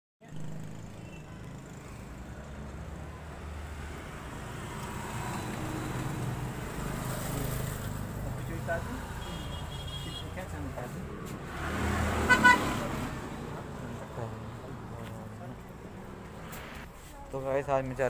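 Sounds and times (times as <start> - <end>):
motor vehicle rumbling: 0.2 - 18.0.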